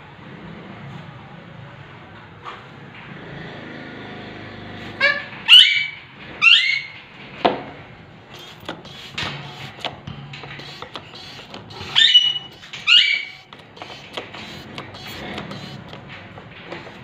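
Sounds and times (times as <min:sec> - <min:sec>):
parakeet squawks: 0:05.0 - 0:06.9, 0:11.8 - 0:13.5.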